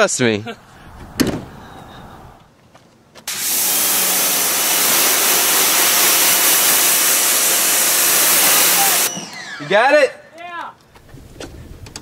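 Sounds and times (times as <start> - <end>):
pressure washer spraying water: 3.3 - 9.2.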